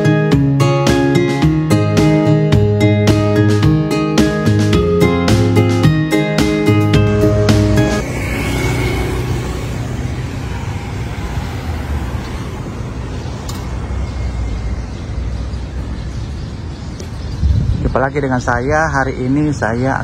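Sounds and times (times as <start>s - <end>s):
road noise rumble: 0.0s - 20.0s
motorcycle passing: 6.4s - 16.6s.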